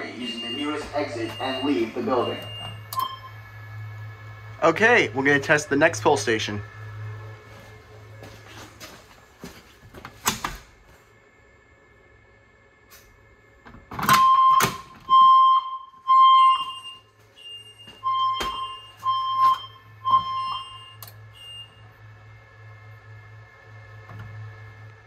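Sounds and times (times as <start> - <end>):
fire alarm beeps: 0.0 - 3.5, 14.0 - 21.8.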